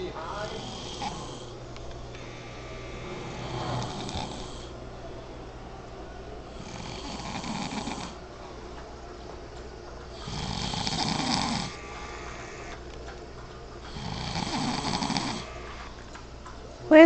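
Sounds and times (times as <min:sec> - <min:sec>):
man snoring: 0:00.0 - 0:01.6, 0:02.2 - 0:04.8, 0:06.5 - 0:08.2, 0:10.2 - 0:12.7, 0:13.9 - 0:15.9.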